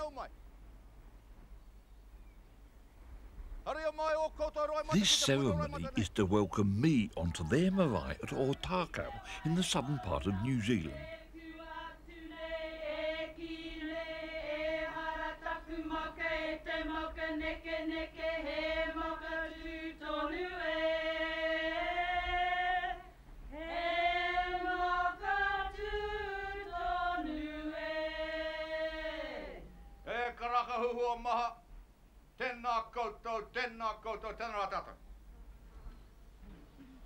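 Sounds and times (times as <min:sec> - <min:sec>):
group of women singing in unison: 0:08.6 - 0:29.8.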